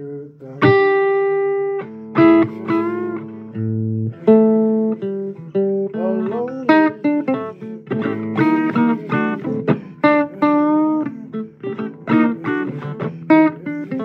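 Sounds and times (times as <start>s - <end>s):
blues guitar with bent notes: 0.0s - 14.0s.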